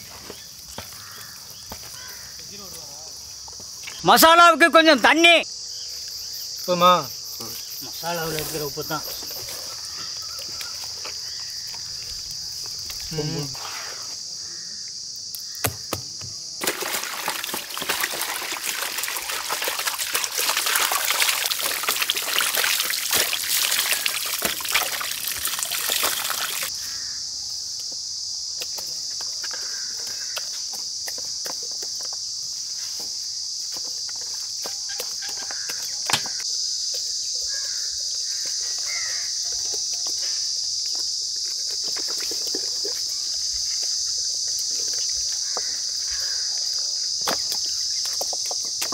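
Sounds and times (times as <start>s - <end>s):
crickets chirping: 0.0s - 48.9s
hands squelching through wet paste: 16.6s - 26.7s, 40.8s - 46.4s.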